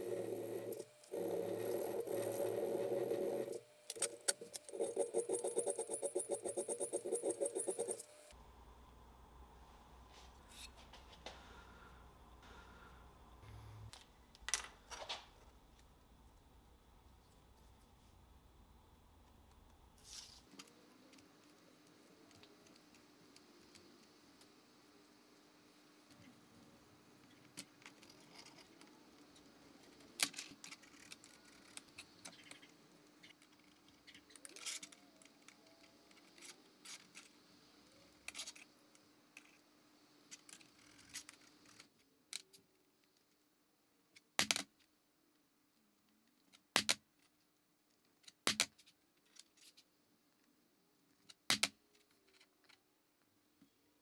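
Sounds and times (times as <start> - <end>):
faint steady hum: 0.0 - 44.2.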